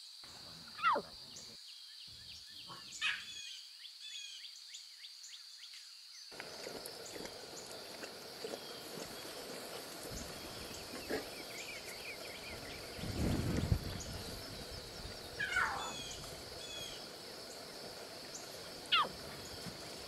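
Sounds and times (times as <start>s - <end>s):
bird chirps: 0.8s - 5.4s
high insect drone: 4.9s - 20.0s.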